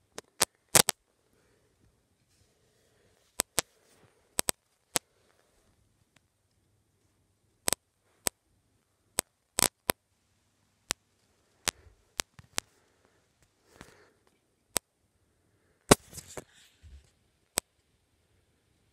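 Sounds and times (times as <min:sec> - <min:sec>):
soft rustling: 0:01.3 - 0:06.2.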